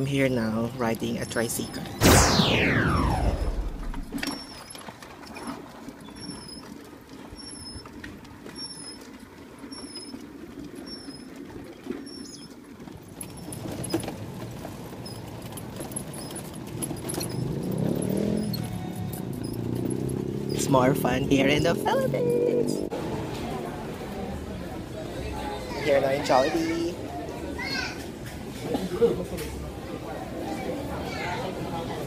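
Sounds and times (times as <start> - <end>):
deep sound rising and falling: 2.0 - 4.5
wheel and road noise: 3.8 - 32.0.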